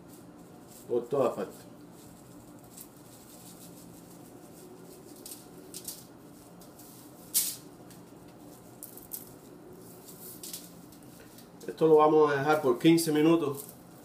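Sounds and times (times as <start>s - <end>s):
sharp rustle: 0.0s - 11.7s
granules pattering onto foil: 0.0s - 14.0s
spice granules rattling in jar: 8.4s - 11.6s.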